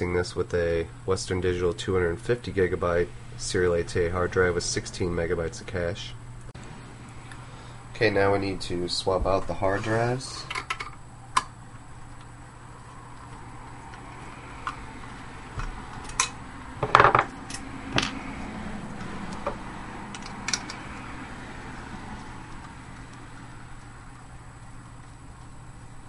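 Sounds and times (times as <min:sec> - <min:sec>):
low steady hum: 0:00.0 - 0:26.0
screws set down on wooden table: 0:16.8 - 0:17.3.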